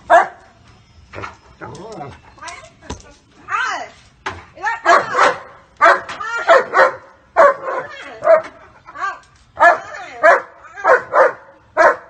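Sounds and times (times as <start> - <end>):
dog barking: 0.1 - 0.4, 4.8 - 8.6, 9.6 - 12.0.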